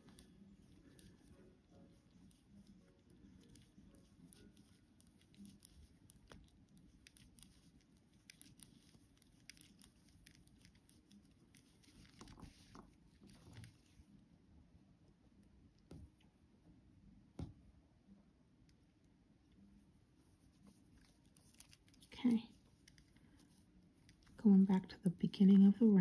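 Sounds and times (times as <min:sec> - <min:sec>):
knitting needles clicking: 0:00.0 - 0:14.0.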